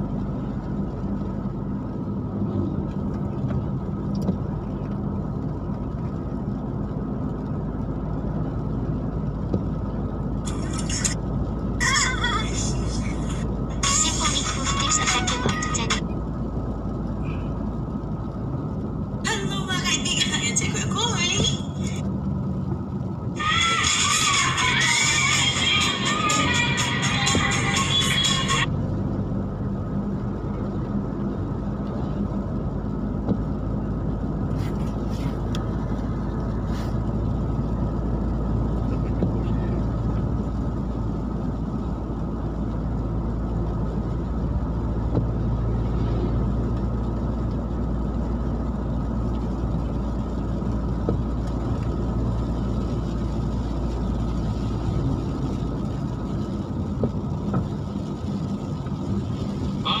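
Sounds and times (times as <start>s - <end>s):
car engine hum: 0.0s - 60.0s
tyre roar on wet road: 0.0s - 60.0s.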